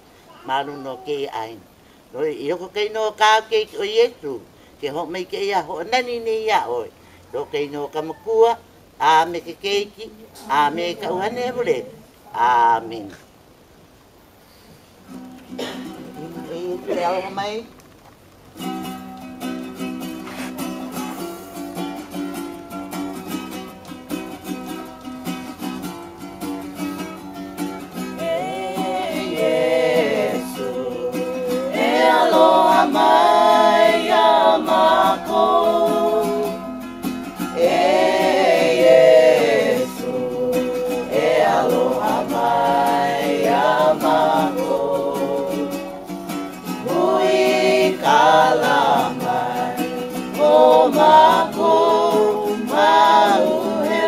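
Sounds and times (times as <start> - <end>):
strummed string instrument: 18.6 - 54.0
group of voices singing: 28.0 - 54.0.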